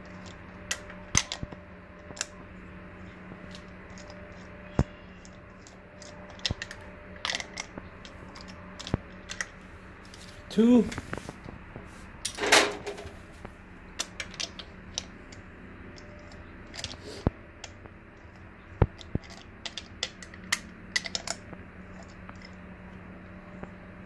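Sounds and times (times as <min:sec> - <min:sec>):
metal tool rattle: 0:12.3 - 0:13.1.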